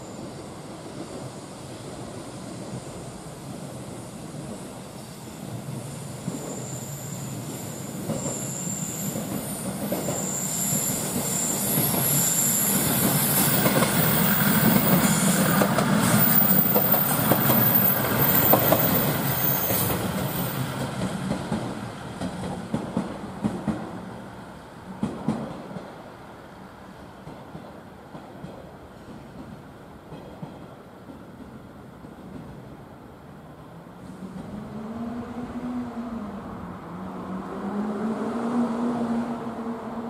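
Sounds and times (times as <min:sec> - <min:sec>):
diesel railcar engines rumbling: 0:00.0 - 0:40.0
high wheel squeal: 0:06.2 - 0:15.5.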